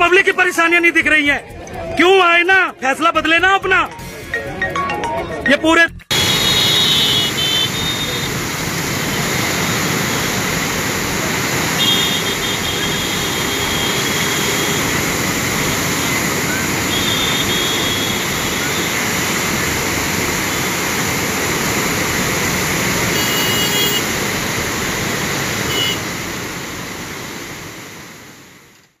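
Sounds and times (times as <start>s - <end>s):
roar of rushing water: 6.2s - 28.7s.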